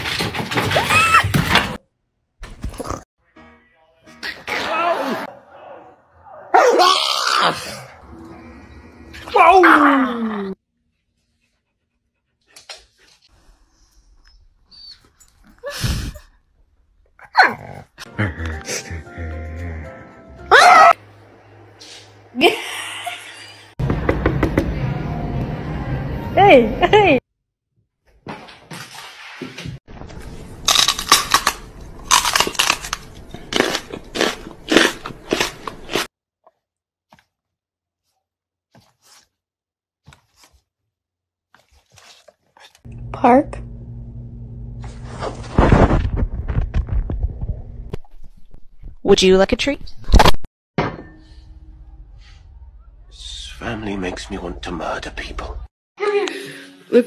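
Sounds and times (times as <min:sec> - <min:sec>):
dog barking: 0:05.2 - 0:06.9.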